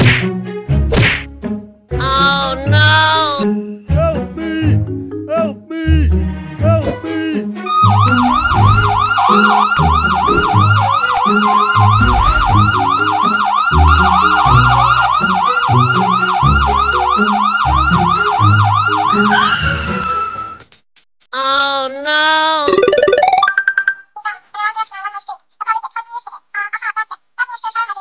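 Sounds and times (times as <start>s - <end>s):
police siren yelping: 7.6s - 20.0s.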